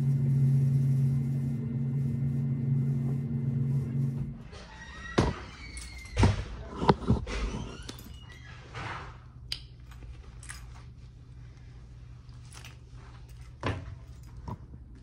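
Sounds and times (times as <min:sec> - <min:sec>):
low room hum: 0:00.0 - 0:15.0
handling clicks and rustles: 0:09.5 - 0:11.2, 0:12.1 - 0:15.0.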